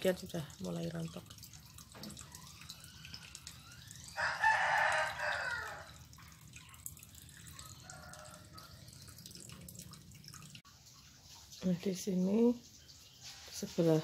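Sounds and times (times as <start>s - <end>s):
rooster crowing: 4.1s - 6.0s, 7.7s - 8.9s.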